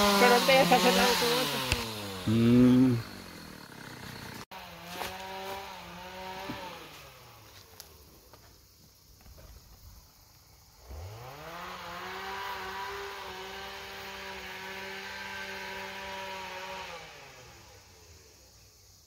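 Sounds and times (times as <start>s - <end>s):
chainsaw revving: 0.0s - 7.7s, 10.8s - 18.2s.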